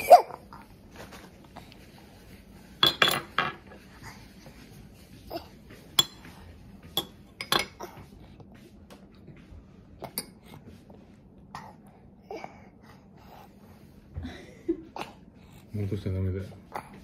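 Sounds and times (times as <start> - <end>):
cutlery clinking and scraping bowls: 2.8 - 3.9, 5.8 - 8.1.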